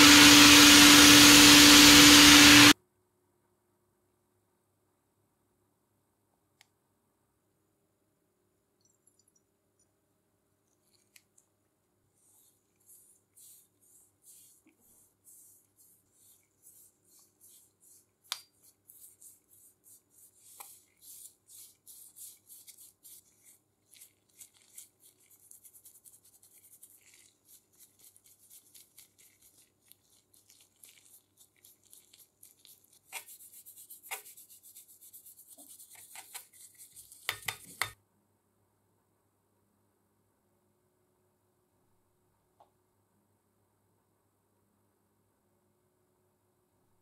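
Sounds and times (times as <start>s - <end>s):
paintbrush swishing on steel: 12.1s - 38.0s.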